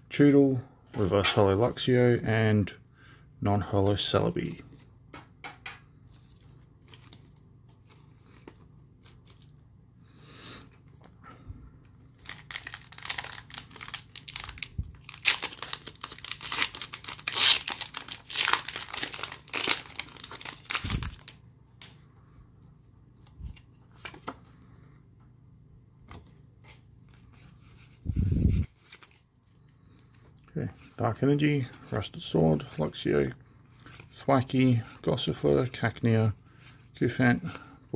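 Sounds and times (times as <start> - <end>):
cards being handled: 4.6 - 9.6, 11.8 - 22.0, 22.7 - 24.6, 26.0 - 31.0
foil wrapper tearing and crinkling: 12.1 - 21.4.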